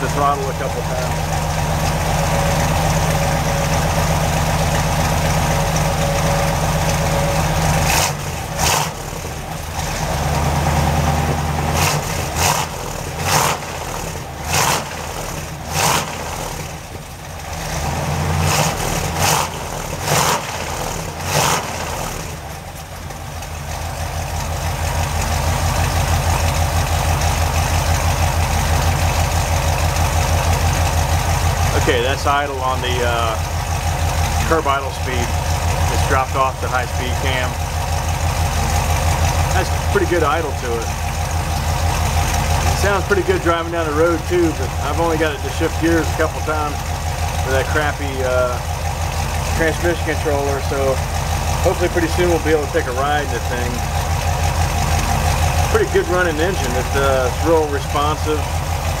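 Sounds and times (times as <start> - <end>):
car engine idling: 0.0 - 59.0
engine revving sharply: 6.3 - 16.8, 17.6 - 22.5.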